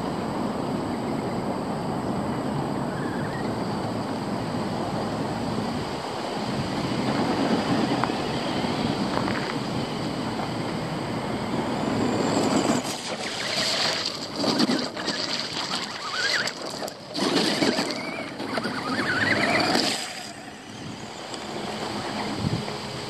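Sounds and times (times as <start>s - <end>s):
rc car motor whining: 6.6s - 23.0s
tyres crunching through gravel: 11.6s - 22.8s.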